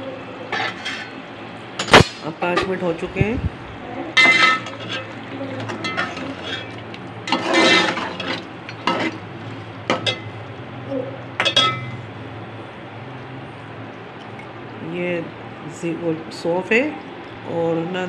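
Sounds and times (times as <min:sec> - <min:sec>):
metal spoon scraping a pot: 0:00.5 - 0:01.2, 0:04.2 - 0:09.2
spoon clinking against pot: 0:11.4 - 0:12.0.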